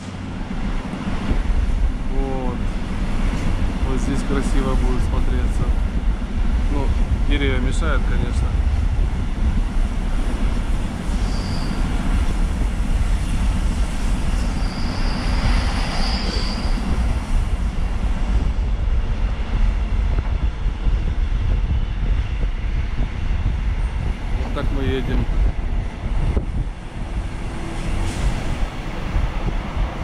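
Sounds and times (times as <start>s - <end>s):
train wheels rumbling on rails: 0.0s - 30.0s
high wheel squeal: 11.1s - 12.1s, 14.2s - 17.1s.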